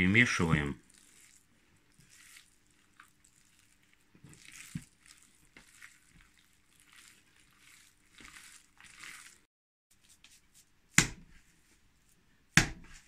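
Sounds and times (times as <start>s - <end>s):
wet squishing of meat mixing: 0.4s - 9.5s.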